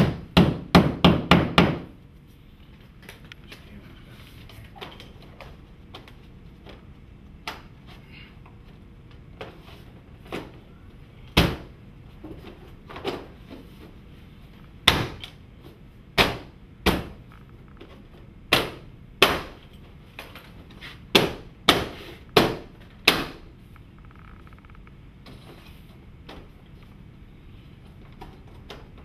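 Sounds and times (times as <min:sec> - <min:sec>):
hammer blows on panels: 0:00.0 - 0:02.0, 0:16.1 - 0:17.3, 0:18.5 - 0:19.7, 0:20.8 - 0:23.5.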